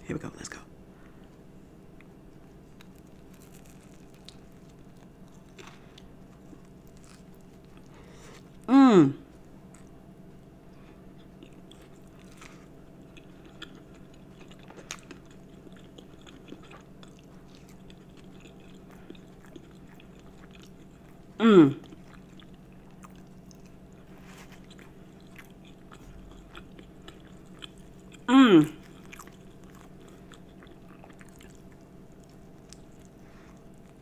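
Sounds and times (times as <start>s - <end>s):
steady low hum: 0.0s - 34.0s
person chewing food: 2.0s - 8.7s, 9.3s - 10.0s, 10.7s - 34.0s
person humming mmm: 8.6s - 9.3s, 21.4s - 22.0s, 28.2s - 28.9s.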